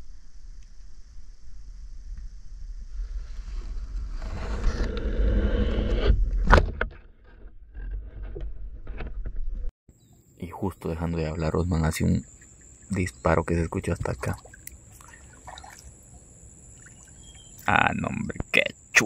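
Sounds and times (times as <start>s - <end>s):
low rumble: 0.0s - 9.7s.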